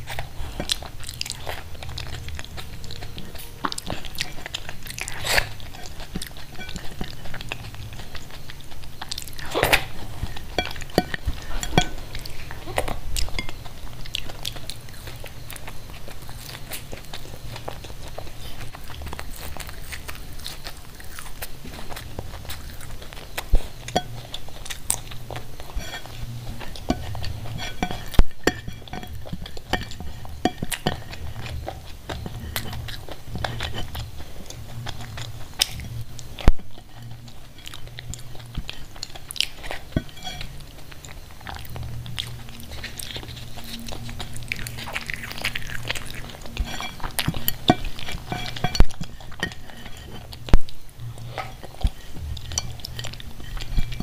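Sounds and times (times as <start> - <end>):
chewing: 0.0 - 54.0
fingers scraping ceramic plate: 25.3 - 36.0, 42.6 - 50.6.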